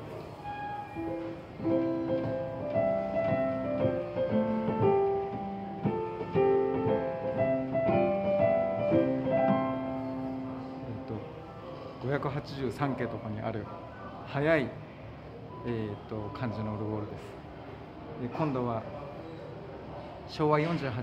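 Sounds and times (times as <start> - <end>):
electronic piano melody: 0.0 - 11.9.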